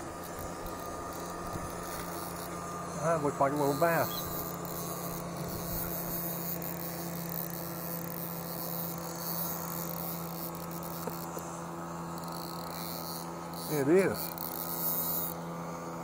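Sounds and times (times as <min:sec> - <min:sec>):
electrical hum: 0:00.0 - 0:16.0.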